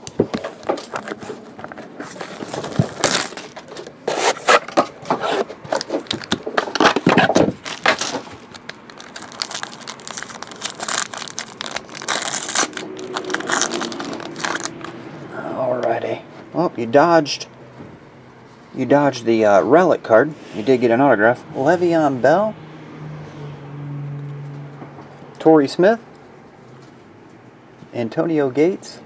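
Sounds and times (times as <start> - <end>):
foil wrapper crinkling and ripping: 0.6 - 4.6, 5.7 - 15.0.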